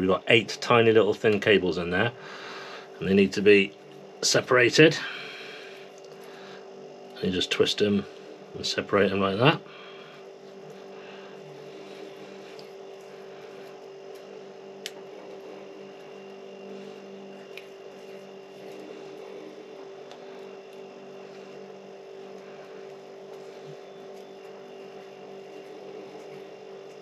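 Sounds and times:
room tone hum: 0.0s - 27.0s
copper wires clicking: 13.8s - 15.1s.

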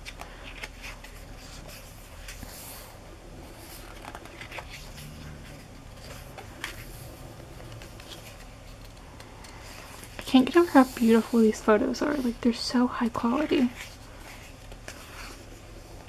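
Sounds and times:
glossy pages turning: 3.5s - 11.4s, 13.6s - 15.5s.

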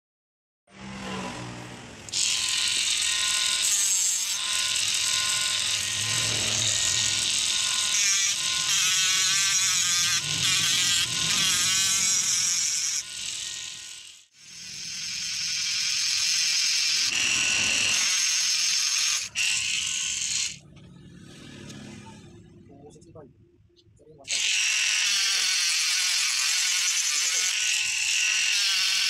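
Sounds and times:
rotary tool grinding whine: 0.7s - 22.4s, 24.3s - 29.0s.

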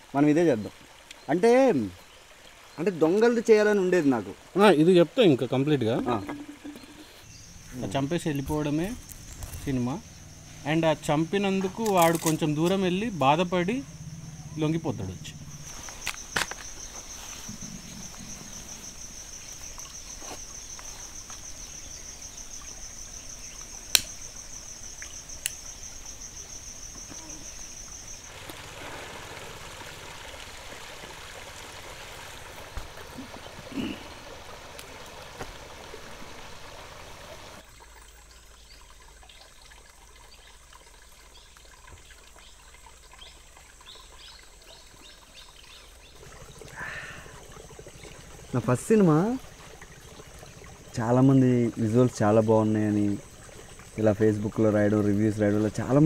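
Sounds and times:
soft outdoor hiss: 0.0s - 56.0s
insect pulsing trill: 5.7s - 28.3s, 45.6s - 54.4s.

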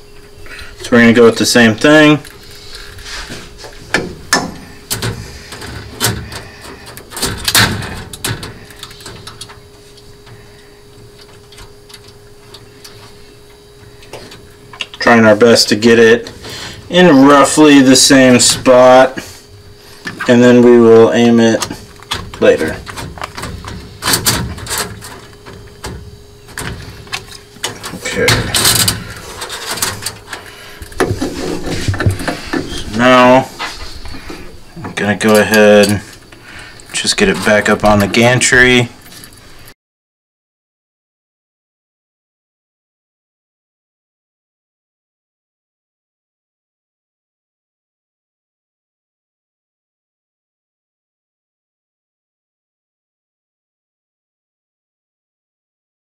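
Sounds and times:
faint steady hum: 0.0s - 39.8s
metal and plastic parts clicking: 3.9s - 9.6s, 21.6s - 31.2s.

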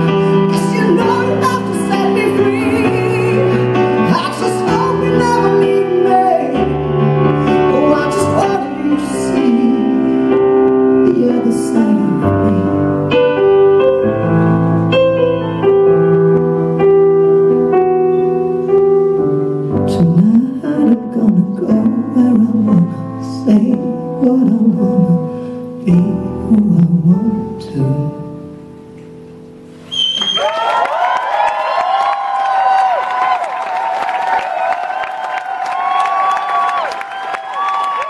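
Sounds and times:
person singing ballad with vibrato: 0.0s - 14.4s, 19.6s - 28.8s
piano accompaniment: 0.0s - 38.0s.

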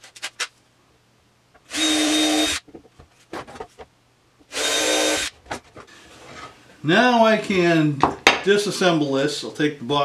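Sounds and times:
cordless drill whining: 1.7s - 2.6s, 4.5s - 5.3s.

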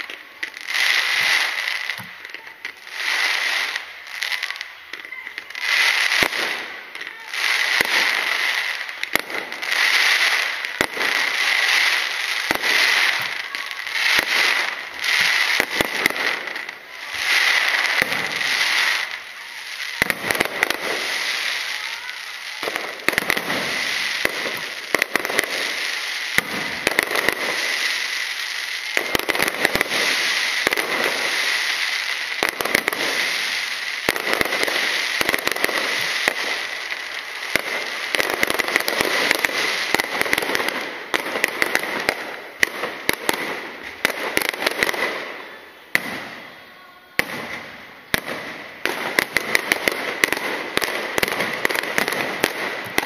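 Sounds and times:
firework crackling: 0.0s - 53.0s
firework shells bursting with bangs: 19.9s - 46.5s, 47.2s - 53.0s.

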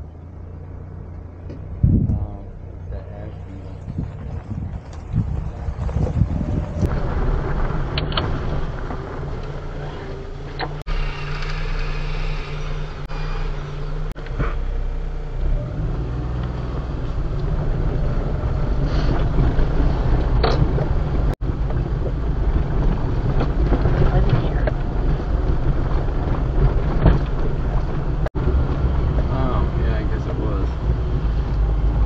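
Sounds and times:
van engine rumbling: 0.0s - 32.0s
knocks and rattles from bumps: 19.3s - 29.3s.

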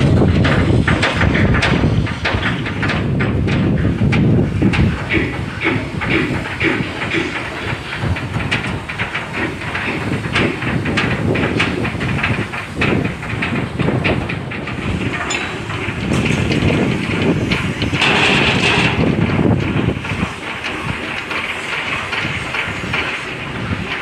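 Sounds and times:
metallic knocks and clanks: 0.0s - 24.0s
shipyard mechanical din: 0.0s - 24.0s.

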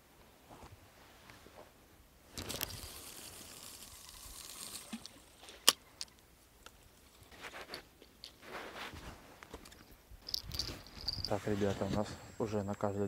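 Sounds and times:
handling rustles and clicks: 2.3s - 12.1s
sharp reel click: 2.4s - 5.2s
fishing line hissing off spool: 2.4s - 5.8s.

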